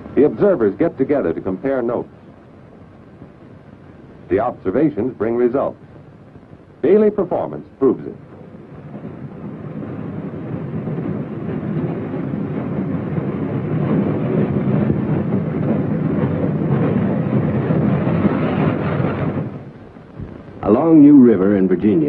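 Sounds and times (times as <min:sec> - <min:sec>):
freight train rumbling past: 0:06.9 - 0:19.7.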